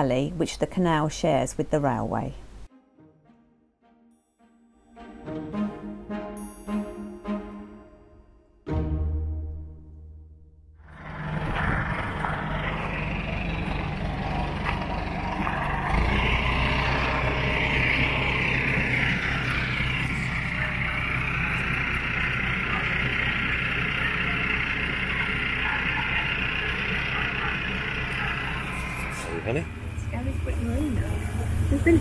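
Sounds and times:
tractor diesel engine under load: 10.8s - 32.0s.

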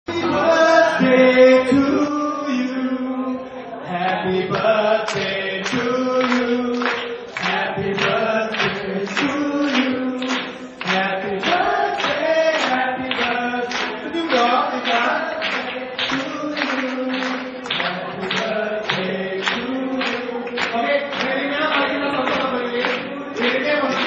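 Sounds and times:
man singing into a microphone: 0.1s - 24.0s.

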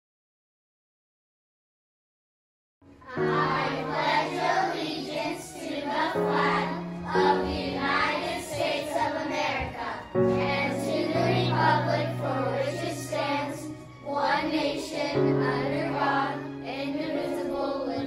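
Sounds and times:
children's choir singing: 3.0s - 18.0s
instrumental accompaniment: 3.0s - 18.0s.

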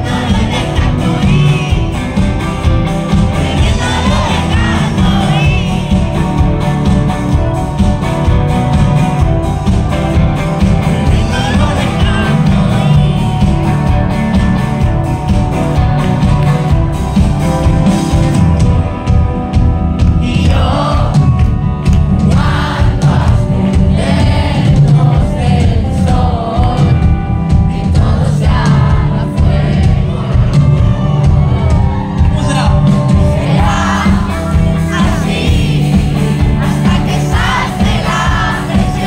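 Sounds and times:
person singing: 0.0s - 2.3s, 3.1s - 6.3s, 10.8s - 13.6s
live pop-rock band playing: 0.0s - 39.0s.

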